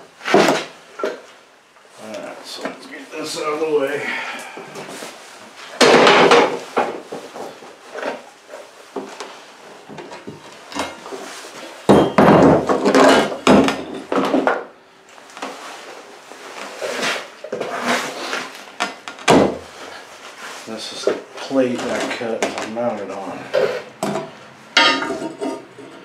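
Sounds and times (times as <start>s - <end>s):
steel plate clanking on workbench: 24.8s - 25.6s.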